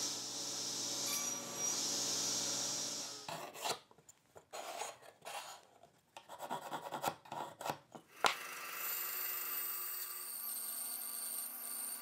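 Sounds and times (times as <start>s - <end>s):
pencil scratching on wood: 3.3s - 3.8s, 4.5s - 7.8s
rubbing and handling wood: 3.3s - 8.0s.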